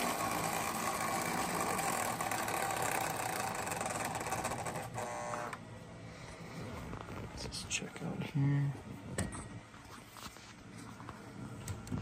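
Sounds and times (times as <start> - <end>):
toy train wheels rumbling: 0.0 - 4.8
toy train motor humming: 0.0 - 5.6.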